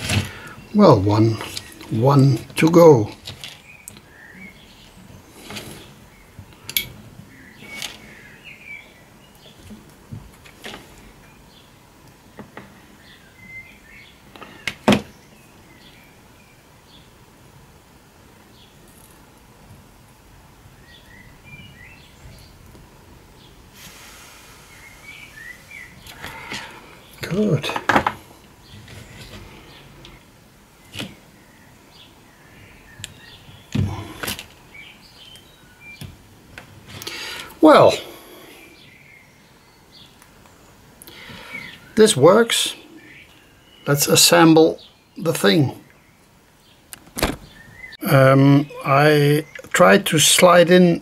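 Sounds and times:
small birds chirping: 0:00.0 - 0:17.3, 0:18.1 - 0:51.0
faint steady hiss: 0:00.0 - 0:51.0
faint bird chirps: 0:24.4 - 0:27.6, 0:37.0 - 0:42.0.

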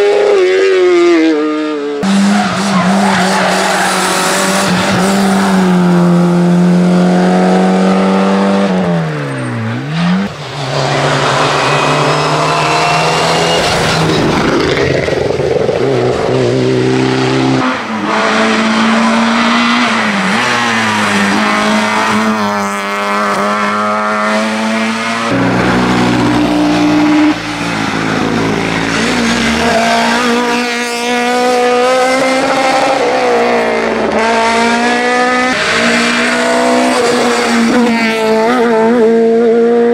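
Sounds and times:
rally car engines at full throttle: 0:00.0 - 0:39.9.

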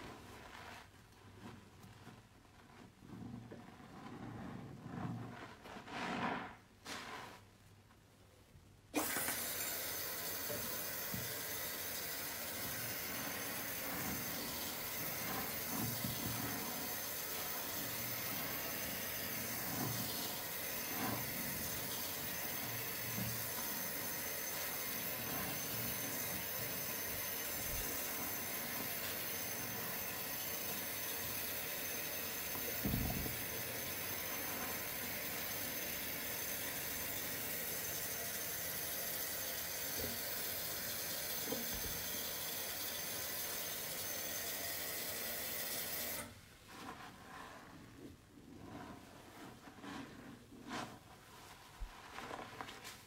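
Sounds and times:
tap water pouring into basin: 0:09.0 - 0:46.2.

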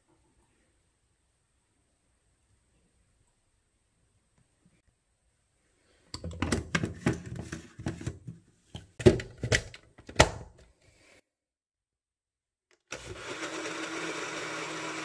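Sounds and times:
hard objects clicking and knocking: 0:06.2 - 0:10.4.

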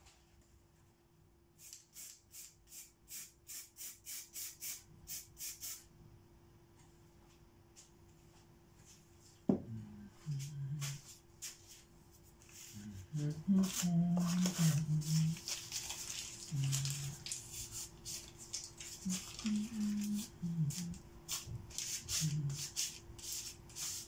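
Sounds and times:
spray can rattling when shaken: 0:13.7 - 0:20.3.

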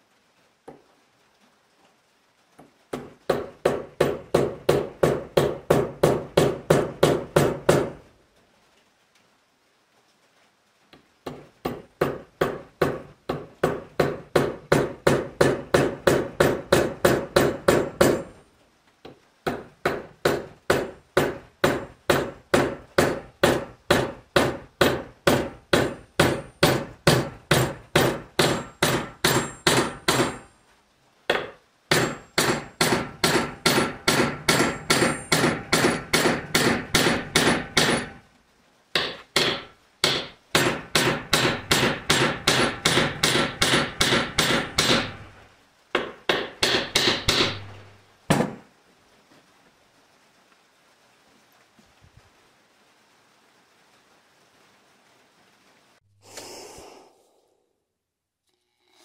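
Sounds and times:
hammer striking steel hatchet head: 0:19.9 - 0:30.4, 0:31.3 - 0:38.2, 0:46.0 - 0:48.6.

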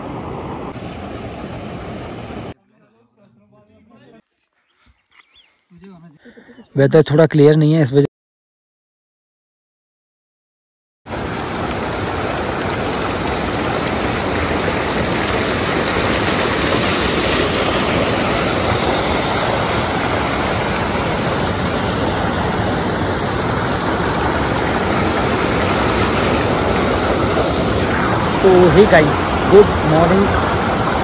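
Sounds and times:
river water rushing: 0:00.0 - 0:02.6, 0:11.1 - 0:31.0.

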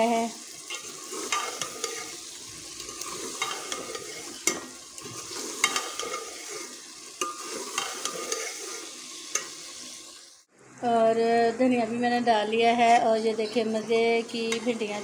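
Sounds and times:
masala sizzling in a pot: 0:00.0 - 0:15.0
metal spoon scraping a pot: 0:00.6 - 0:09.6.

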